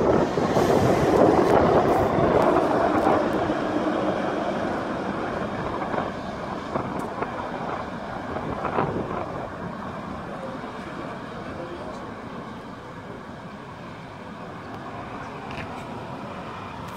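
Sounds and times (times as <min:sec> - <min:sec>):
heavy truck passing: 0:00.0 - 0:16.9.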